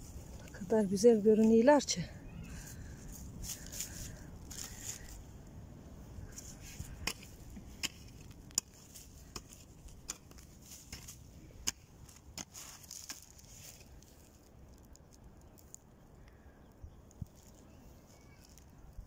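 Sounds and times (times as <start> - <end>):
plastic bag and leaves crinkling: 0.0 - 16.3, 17.0 - 19.0
stems snapping: 6.2 - 16.4.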